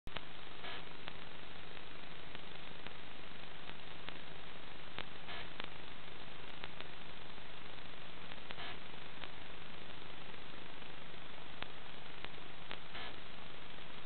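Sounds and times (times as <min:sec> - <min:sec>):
faint low hum: 0:00.1 - 0:14.0
static hiss: 0:00.1 - 0:14.0.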